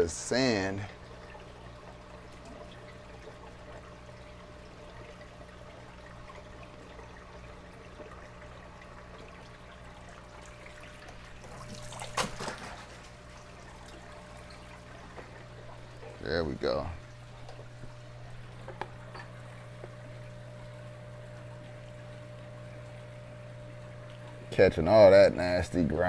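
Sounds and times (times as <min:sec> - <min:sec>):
aquarium pumps humming: 0:00.0 - 0:26.0
water trickling and splashing: 0:00.0 - 0:26.0
splashing and knocking: 0:11.4 - 0:13.3.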